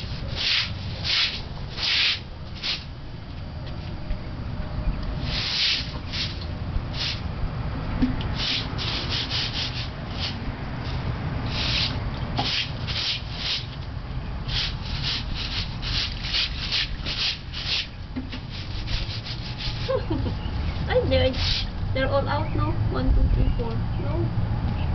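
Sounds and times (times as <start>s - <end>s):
broom sweeping wet concrete: 0.0s - 2.9s, 5.2s - 7.3s, 8.3s - 13.8s, 14.4s - 20.1s, 21.1s - 21.7s.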